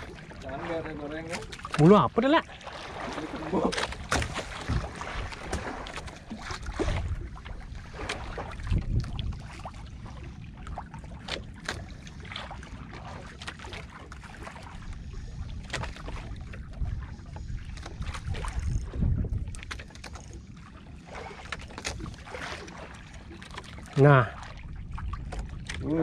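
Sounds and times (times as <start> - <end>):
water against hull: 0.0 - 26.0
wind buffeting microphone: 2.8 - 11.2, 14.4 - 19.8.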